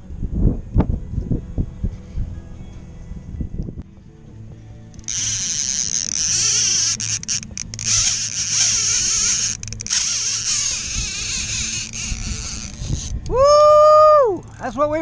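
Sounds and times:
fishing reel whirring: 4.8 - 14.6.

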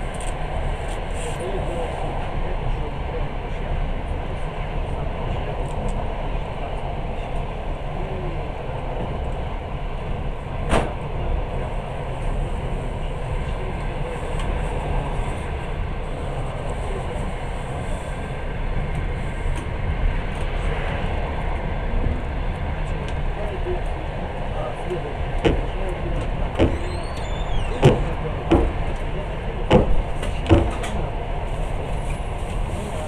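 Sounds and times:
train rumbling on rails: 0.0 - 33.0
sharp knock: 26.6 - 27.0, 27.8 - 28.8, 29.7 - 31.0.

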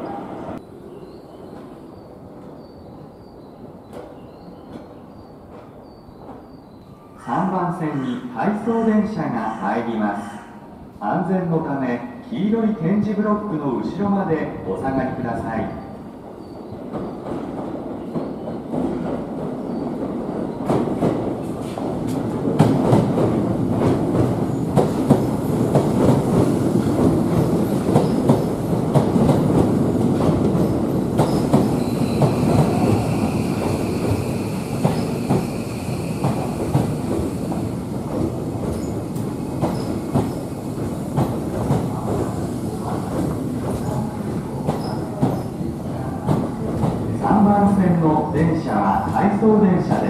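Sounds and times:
train rumble: 14.5 - 50.0
train wheels clicking over rail joints: 36.2 - 44.0.

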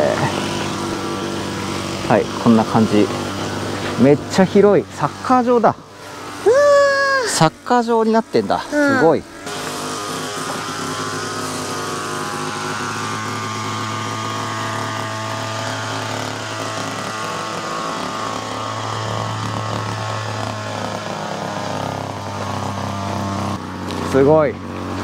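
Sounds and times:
car engine drone: 0.0 - 25.0.

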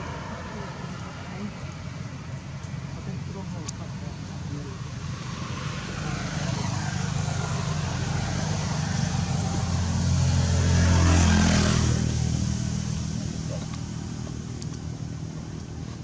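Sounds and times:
vehicle passing by: 0.0 - 15.3.

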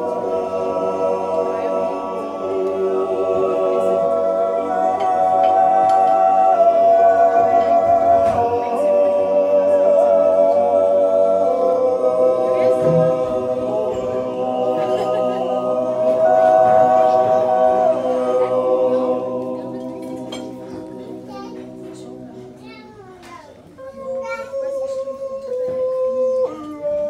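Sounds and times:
men's choir yodelling a cappella: 0.0 - 21.3, 23.8 - 27.0.

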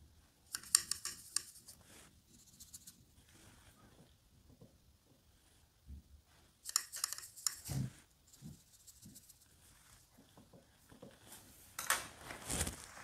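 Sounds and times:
painting tools clicking and scraping: 0.4 - 3.0, 6.5 - 12.0.

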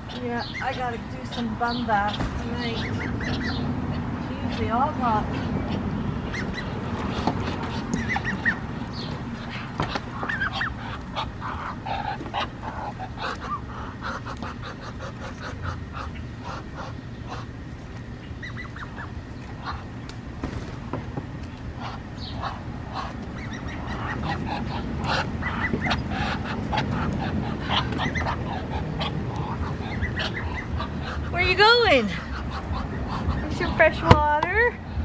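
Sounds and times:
duck calls: 0.4 - 3.8, 4.4 - 8.7, 9.4 - 17.6, 21.8 - 33.7.

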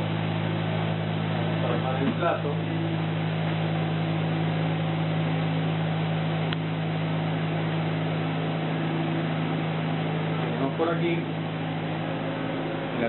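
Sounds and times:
machine hum with hiss: 0.0 - 13.0.

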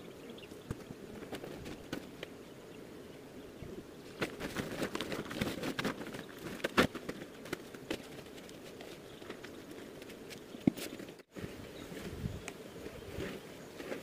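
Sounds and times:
plastic tarp rustling and crinkling: 4.2 - 9.5.

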